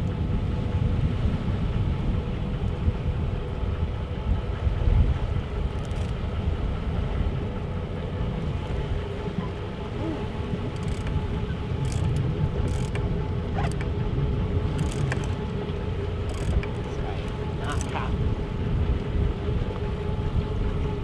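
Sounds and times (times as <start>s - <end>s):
boat engine running: 0.0s - 21.0s
sea noise: 0.0s - 21.0s
wind: 0.0s - 21.0s
sharp ticks: 5.7s - 6.2s, 10.7s - 14.0s, 14.7s - 15.5s, 16.2s - 18.0s.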